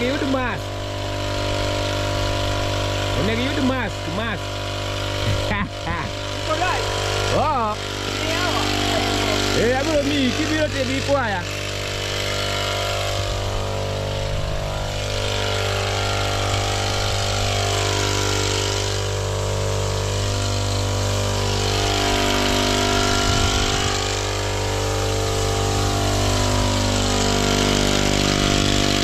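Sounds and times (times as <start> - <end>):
small engine running steadily: 0.0 - 29.0.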